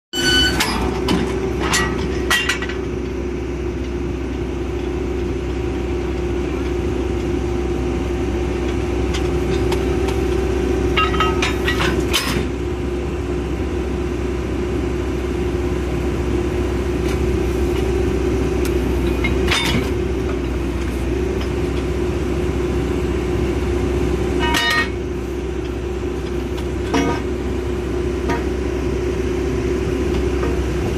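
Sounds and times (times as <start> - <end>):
metal clanks on drill pipe: 0.2 - 3.1, 8.6 - 12.6, 18.7 - 21.8, 24.3 - 27.4, 28.2 - 28.6
drilling rig engine running: 0.2 - 30.9.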